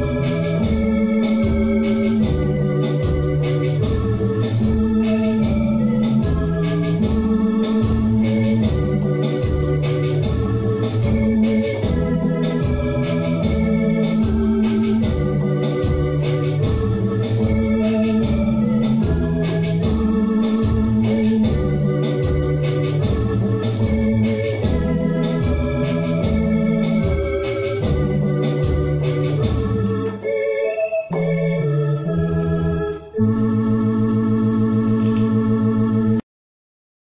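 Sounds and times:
steady electronic beat: 0.0s - 36.2s
organ hymn on keyboard: 0.0s - 36.3s.

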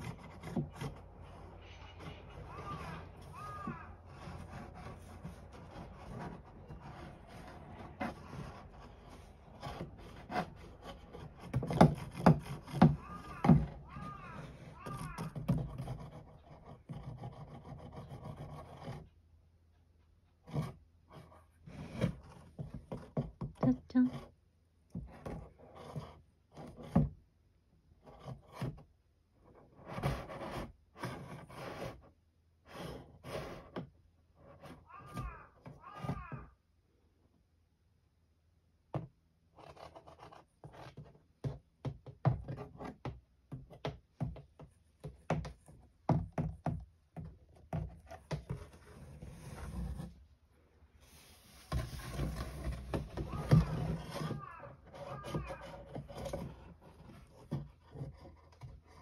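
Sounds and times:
scraping on cardboard box: 0.0s - 19.2s, 20.4s - 24.4s, 25.0s - 27.2s, 29.5s - 35.3s, 45.0s - 50.3s, 51.0s - 59.0s.

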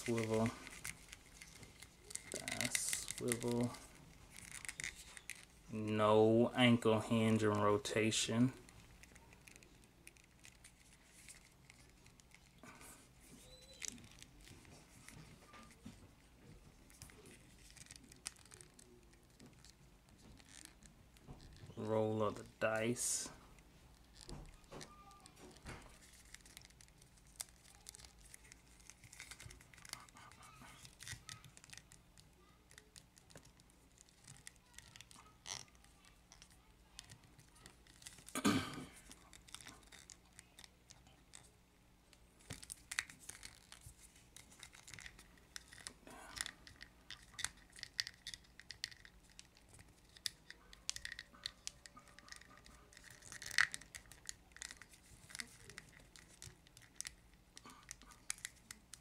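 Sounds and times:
soft rustles of handling: 0.0s - 59.0s
small plastic clicks: 42.4s - 59.0s.

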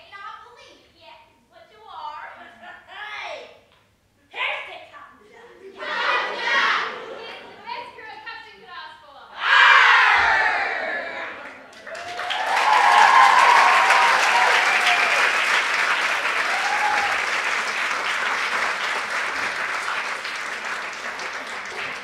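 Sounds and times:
voices cheering: 5.6s - 7.6s, 9.4s - 17.7s
audience applauding: 11.2s - 22.0s.

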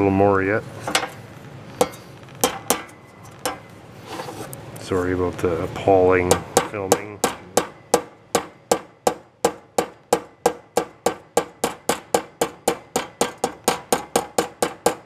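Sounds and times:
hammer tapping metal: 1.8s - 3.7s, 6.2s - 15.0s.

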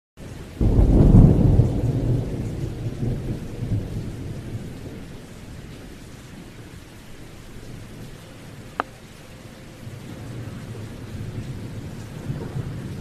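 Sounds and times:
rain hissing: 0.2s - 13.0s
thunder rumbling: 0.6s - 6.8s, 9.8s - 13.0s.

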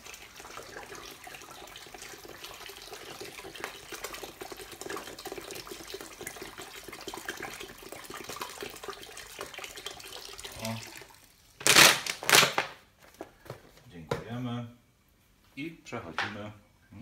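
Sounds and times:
liquid pouring into sink drain: 0.0s - 11.7s.

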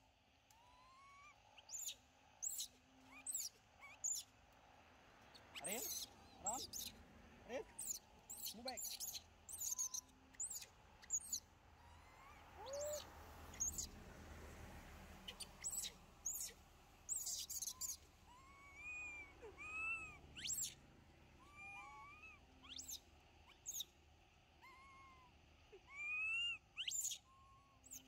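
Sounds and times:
monkey coo calls: 5.6s - 6.9s, 7.6s - 13.9s, 15.3s - 20.8s
monkeys squeaking: 5.6s - 6.9s, 7.6s - 13.9s, 15.2s - 20.8s.

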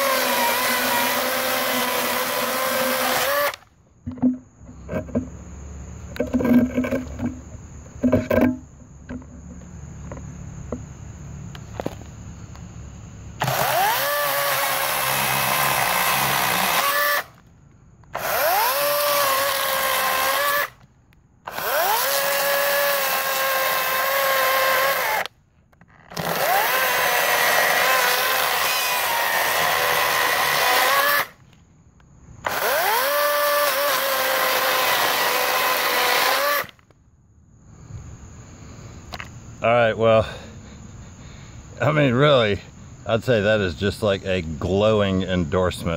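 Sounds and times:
electric chainsaw whining: 0.0s - 3.7s, 13.4s - 17.4s, 18.1s - 20.8s, 21.5s - 25.3s, 26.1s - 31.4s, 32.4s - 36.8s.

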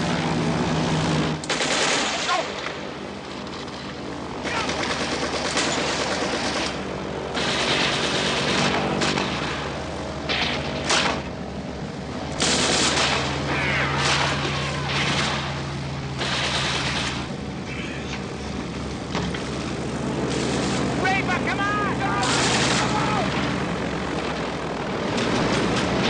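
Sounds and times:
low engine drone: 0.0s - 26.0s
automatic gunfire bursts: 1.5s - 2.5s, 4.4s - 9.3s, 12.4s - 13.3s, 16.2s - 17.2s, 22.2s - 22.9s.

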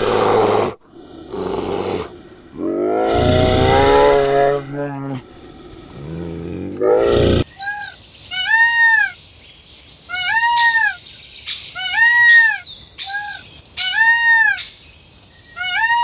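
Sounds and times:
peafowl calling: 7.4s - 9.2s, 10.1s - 14.8s, 15.5s - 16.0s.

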